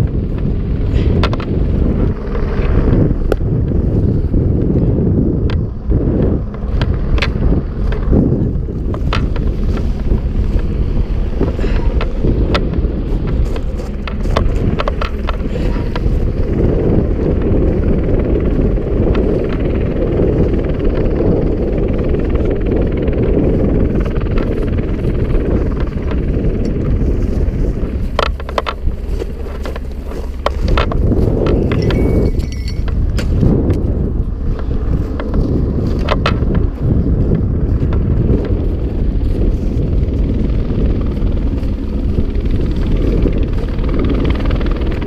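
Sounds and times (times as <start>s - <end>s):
wind buffeting microphone: 0.0s - 45.0s.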